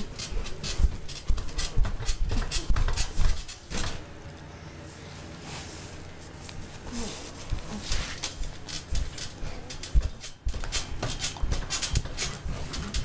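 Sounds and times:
dog rubbing against camera: 5.5s - 13.0s.

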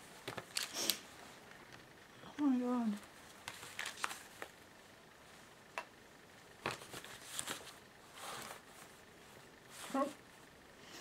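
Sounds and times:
paper rustling: 0.2s - 1.0s, 3.0s - 4.6s, 6.6s - 9.0s.

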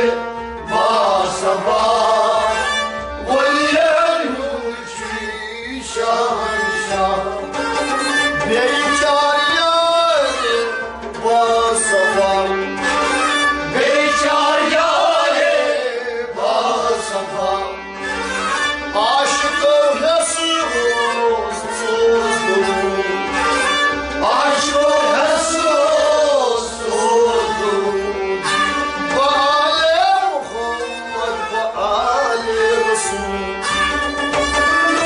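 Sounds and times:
man singing: 0.0s - 17.9s, 18.8s - 35.0s
bowed fiddle: 0.0s - 35.0s
harmonium: 0.0s - 35.0s.

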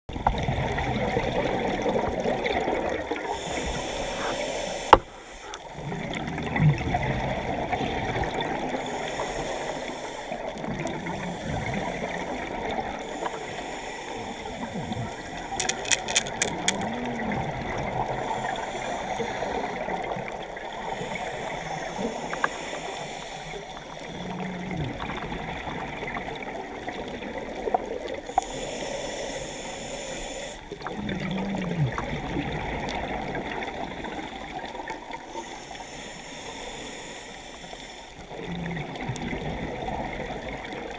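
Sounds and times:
exhaled bubbles gurgling: 0.1s - 4.7s, 5.5s - 15.6s, 16.8s - 28.9s, 30.6s - 35.3s, 38.2s - 40.9s
sharp clicks: 15.6s - 16.8s.

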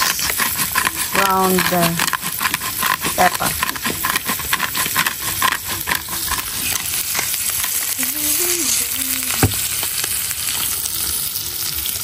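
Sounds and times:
pepper grinder clicking: 0.0s - 7.9s
steak sizzling in frying pan: 0.0s - 12.0s.

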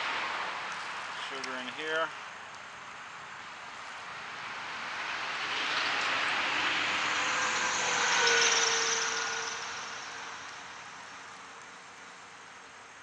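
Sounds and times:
vehicle passing by: 3.6s - 11.6s.

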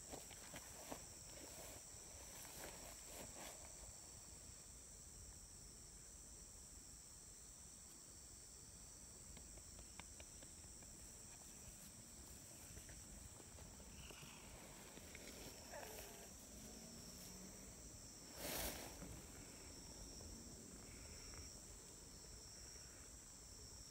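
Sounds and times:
insects droning: 0.0s - 23.9s
brushing rustle: 11.0s - 19.6s.

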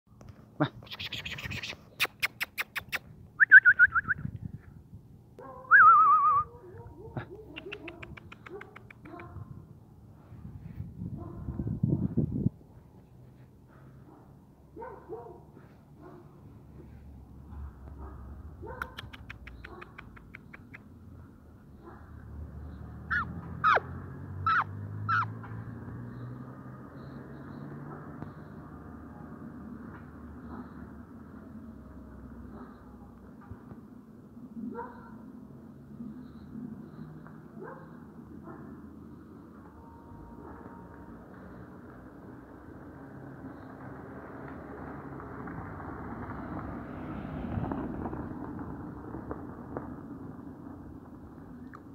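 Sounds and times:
quick ticks: 0.9s - 3.1s, 7.5s - 9.4s, 18.8s - 20.9s
person tongue clicking: 1.5s - 4.2s, 7.5s - 9.2s, 18.8s - 20.9s
person whistling: 3.4s - 4.2s, 5.7s - 6.5s
puppies yelping: 23.0s - 25.4s.

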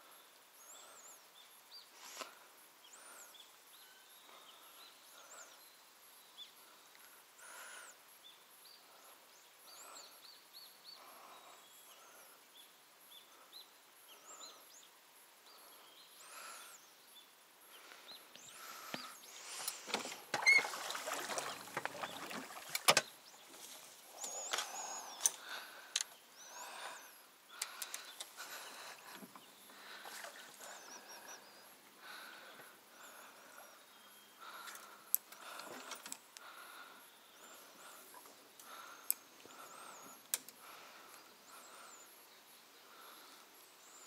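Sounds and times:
fishing gear rustling and clattering: 19.6s - 26.0s
faint high bird chirps: 20.4s - 25.6s.

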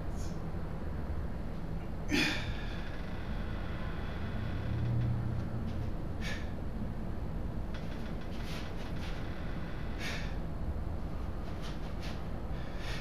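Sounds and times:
low room hum: 0.0s - 13.0s
man blowing out sharp breaths: 9.9s - 10.4s.

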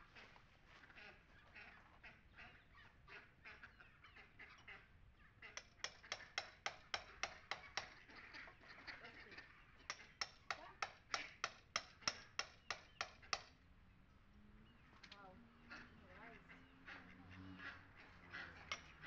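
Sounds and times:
hammer striking chisel: 5.6s - 7.9s, 9.9s - 13.5s, 18.7s - 18.9s.

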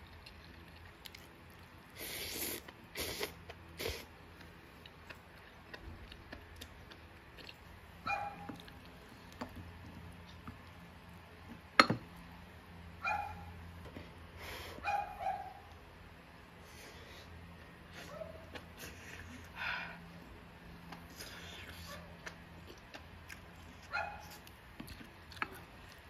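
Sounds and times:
noisy eating slurps: 2.0s - 4.1s
dog yelping: 8.0s - 8.6s, 13.0s - 13.5s, 14.8s - 15.7s.

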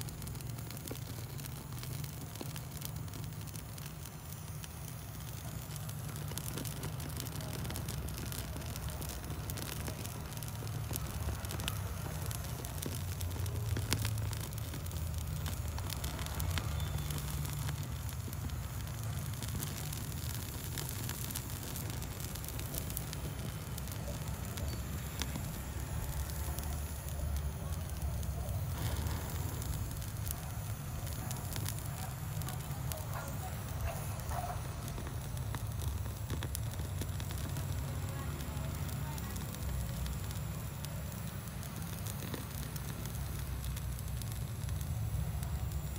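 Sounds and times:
foliage burning and crackling: 0.0s - 45.9s
gas torch flame rushing: 0.0s - 45.9s.

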